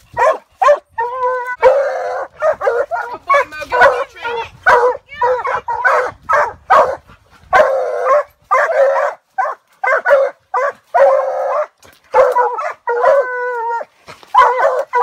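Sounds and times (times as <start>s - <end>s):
hounds barking: 0.1s - 15.0s
hound bawling: 0.6s - 6.0s.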